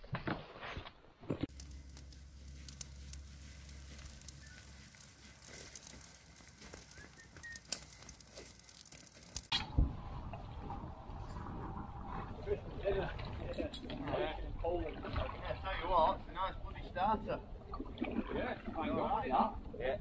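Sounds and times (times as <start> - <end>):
wood fire hissing and crackling: 1.5 - 9.6.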